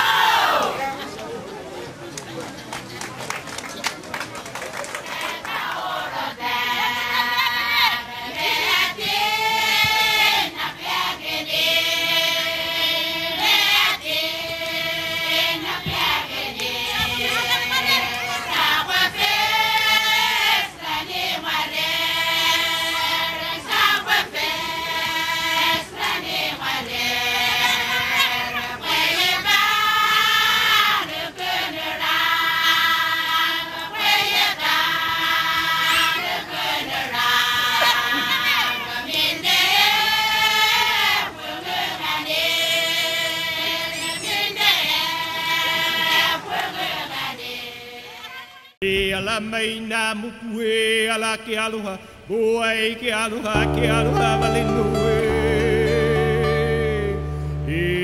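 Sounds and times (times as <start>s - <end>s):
group chanting in unison: 5.4s - 48.2s.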